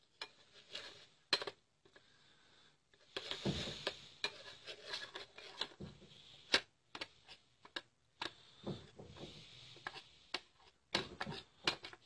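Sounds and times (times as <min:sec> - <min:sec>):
spoon scraping a bowl: 0:03.1 - 0:05.8.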